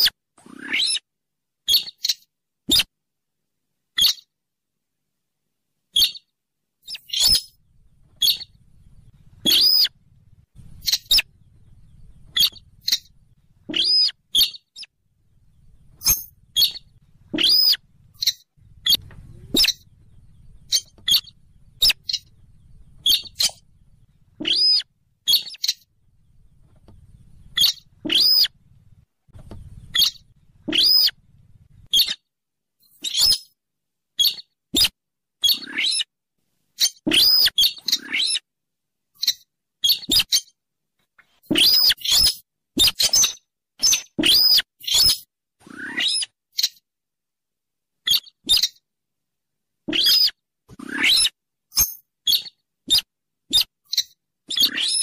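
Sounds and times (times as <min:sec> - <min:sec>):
bird squeaky calls: 0:00.0 - 0:01.0, 0:01.7 - 0:02.9, 0:04.0 - 0:04.3, 0:06.0 - 0:07.6, 0:08.2 - 0:10.0, 0:10.6 - 0:14.9, 0:15.7 - 0:23.7, 0:24.4 - 0:25.9, 0:26.6 - 0:28.5, 0:29.6 - 0:31.2, 0:31.8 - 0:32.2, 0:32.9 - 0:33.6, 0:34.2 - 0:36.1, 0:36.8 - 0:38.4, 0:39.2 - 0:40.5, 0:41.5 - 0:46.8, 0:48.1 - 0:48.8, 0:49.9 - 0:55.0
faint low hum: 0:07.4 - 0:32.0.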